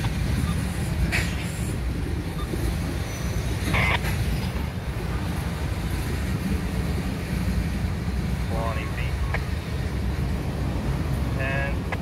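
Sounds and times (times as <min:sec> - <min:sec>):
diesel locomotive engine rumble: 0:00.0 - 0:12.0.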